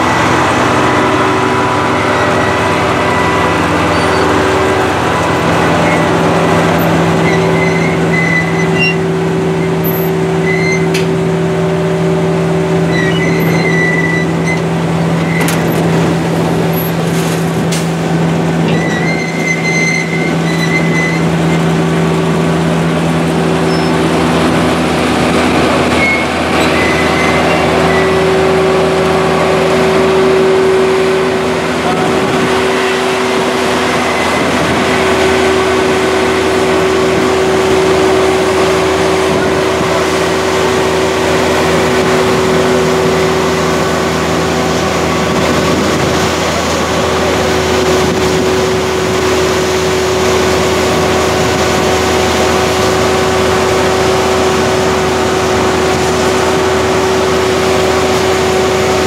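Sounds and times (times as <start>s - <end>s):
engine hum: 0.0s - 59.0s
short high squeals: 2.2s - 4.7s, 5.7s - 11.1s, 12.8s - 15.8s, 18.6s - 21.7s, 23.6s - 24.1s, 25.9s - 28.5s.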